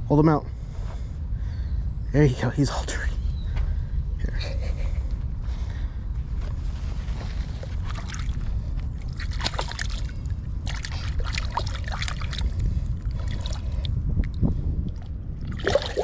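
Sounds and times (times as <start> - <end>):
steady low rumble: 0.0 - 16.0
lake water splashing at shoreline: 9.1 - 12.6.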